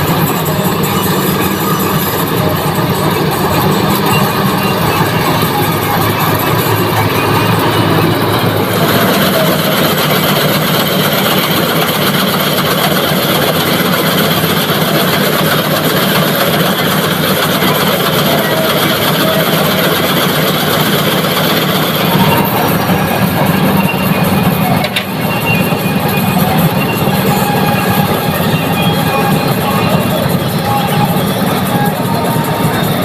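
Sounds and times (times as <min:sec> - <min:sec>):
combine harvester engine: 0:00.0 - 0:33.0
threshing machinery: 0:00.0 - 0:33.0.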